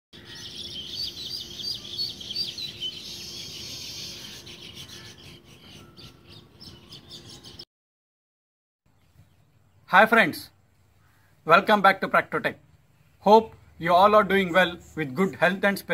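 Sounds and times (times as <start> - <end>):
birds chirping: 0.2 - 7.7, 8.9 - 11.8.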